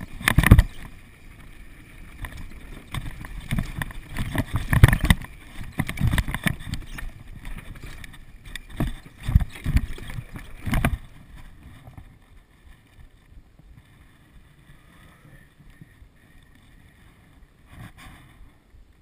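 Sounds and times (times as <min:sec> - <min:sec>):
mountain bike rattling and clattering: 0:00.0 - 0:12.2.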